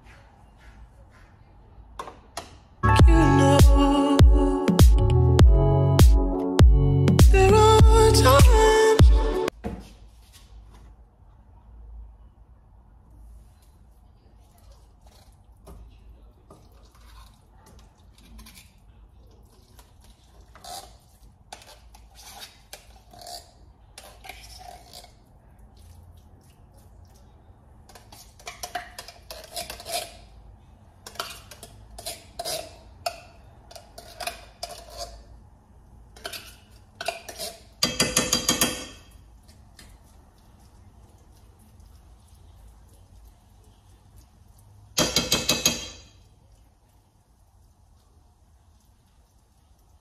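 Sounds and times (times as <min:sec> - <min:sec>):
metal spoon scraping in tin can: 0:27.9 - 0:30.3, 0:33.7 - 0:35.3.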